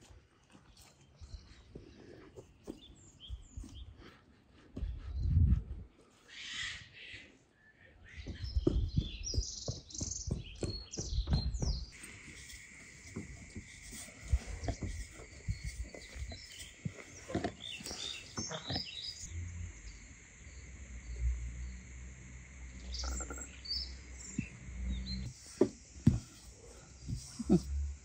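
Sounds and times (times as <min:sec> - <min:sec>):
birds chirping: 0:06.2 - 0:27.7
low hum: 0:12.0 - 0:28.0.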